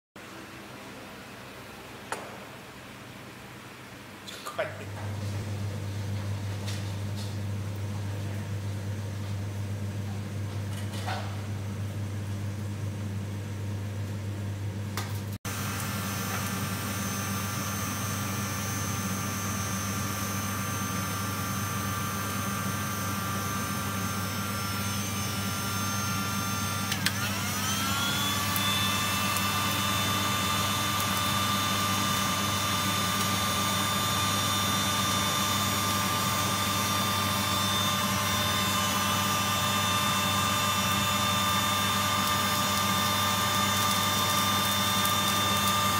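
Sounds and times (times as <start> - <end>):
electric blower drone and whine: 15.0 - 45.9.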